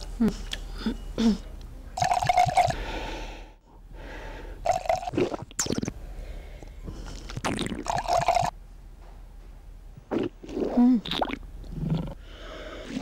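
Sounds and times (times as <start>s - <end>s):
wine pouring into a glass: 7.9s - 8.5s.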